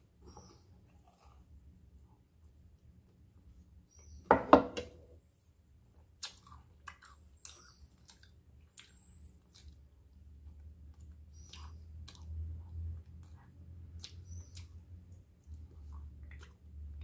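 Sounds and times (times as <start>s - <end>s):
mug knocking on wooden table: 4.3s - 4.9s.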